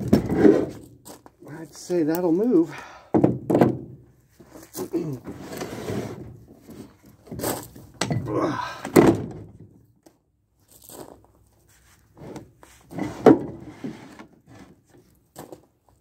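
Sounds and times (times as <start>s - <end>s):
cast-iron vise clunking and scraping: 5.2s - 8.3s, 12.2s - 14.9s.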